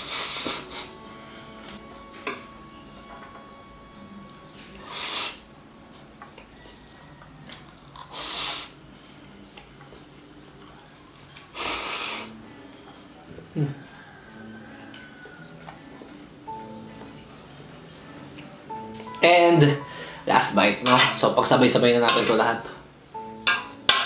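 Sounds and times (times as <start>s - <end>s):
person slurping noodles: 11.5s - 12.4s.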